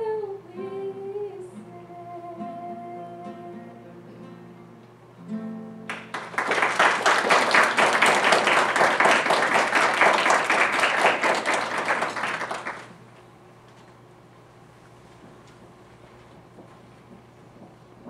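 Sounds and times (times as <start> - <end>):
acoustic guitar notes ringing: 1.5 - 6.1
audience applause: 5.9 - 13.0.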